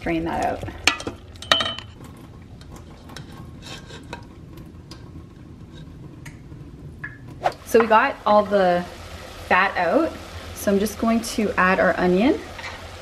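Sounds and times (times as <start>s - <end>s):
wooden spoon scraping metal pot: 2.6s - 4.5s.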